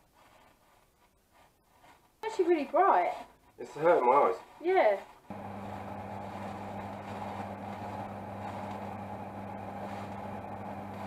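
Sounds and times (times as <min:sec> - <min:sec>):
electric fan motor humming: 0:05.3 - 0:11.0.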